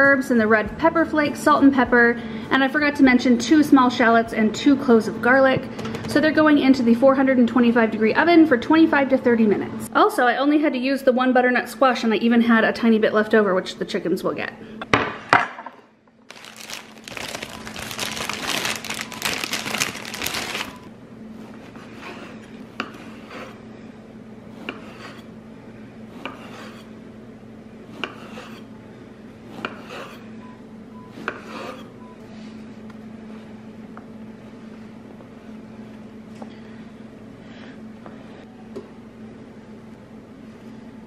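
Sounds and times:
plastic wrapper crinkling: 0:16.3 - 0:20.9.

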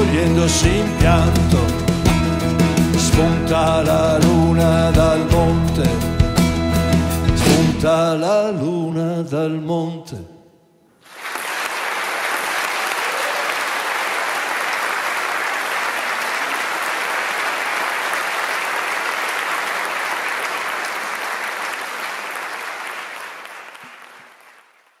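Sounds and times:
audience applauding: 0:11.0 - 0:25.0.

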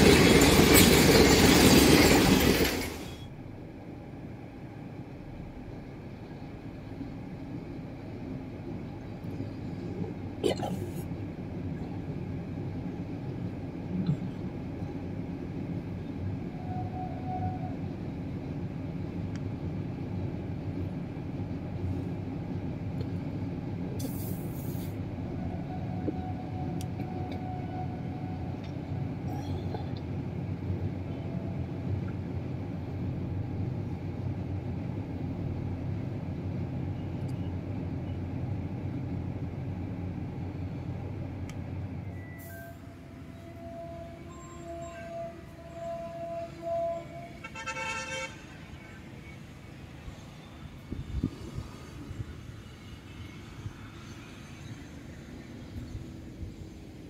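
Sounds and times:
train wheels rumbling on bridge: 0:00.0 - 0:03.3.

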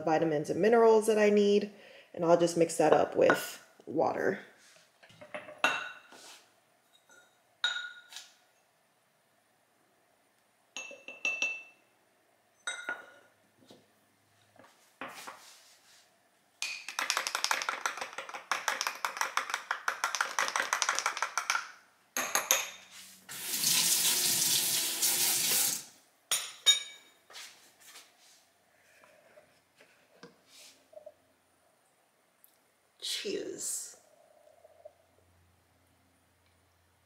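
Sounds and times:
metal spoon clinking against glass: 0:10.8 - 0:11.8
kitchen tap running: 0:23.3 - 0:25.9.

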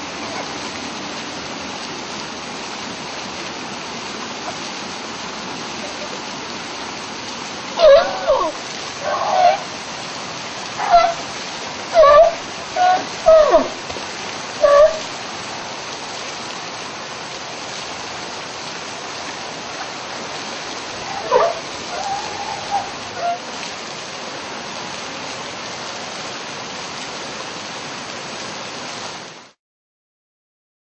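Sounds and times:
water pouring into pool: 0:00.0 - 0:29.2
sea lion calls: 0:07.8 - 0:09.7, 0:10.8 - 0:11.2, 0:11.9 - 0:14.0, 0:14.6 - 0:15.1, 0:20.9 - 0:23.5.

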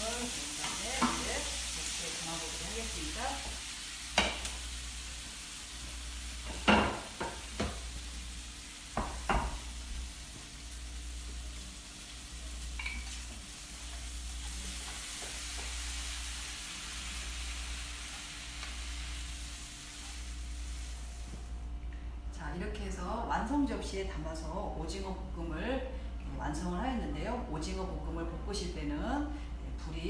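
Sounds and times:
food sizzling in a frying pan: 0:00.0 - 0:21.6.

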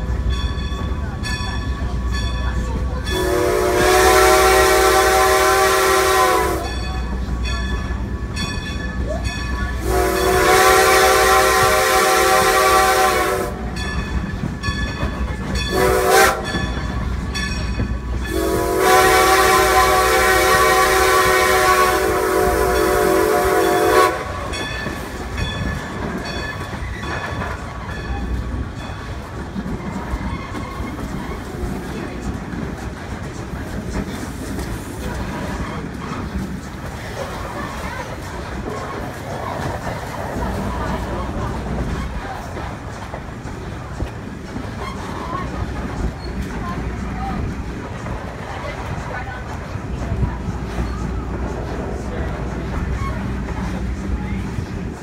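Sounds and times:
train wheels over rail joints: 0:00.0 - 0:55.0
steam whistle blasts: 0:03.1 - 0:06.7, 0:09.8 - 0:13.6, 0:15.7 - 0:16.5, 0:18.3 - 0:24.5.

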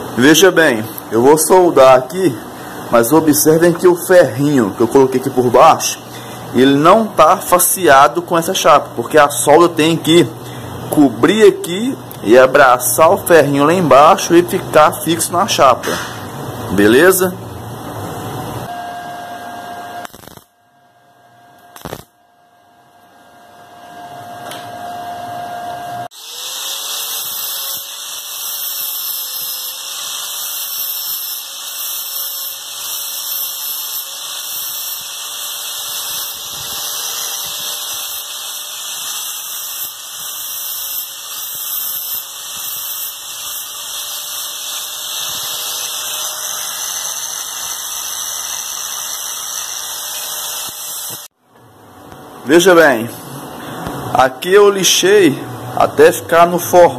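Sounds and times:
sharp click: 0:15.8 - 0:16.2
angle grinder grinding steel: 0:26.1 - 0:51.3.

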